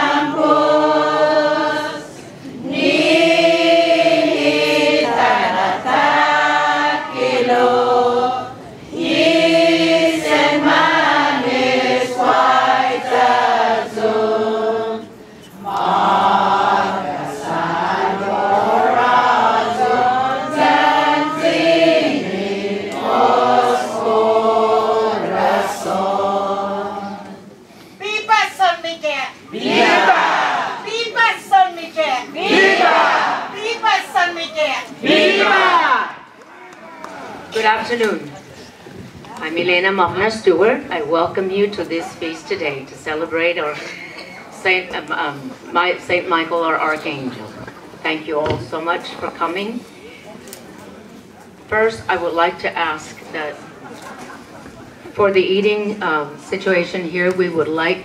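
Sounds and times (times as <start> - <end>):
group singing a hymn: 0.0 - 27.8, 29.5 - 30.9, 32.4 - 33.8, 34.9 - 36.3.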